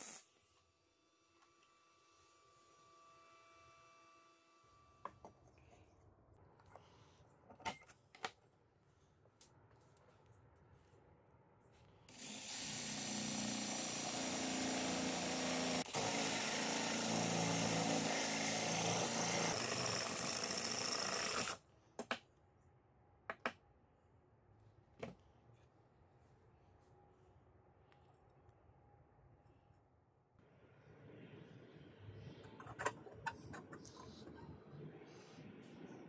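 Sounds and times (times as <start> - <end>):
drill boring through steel: 12.1 - 21.6.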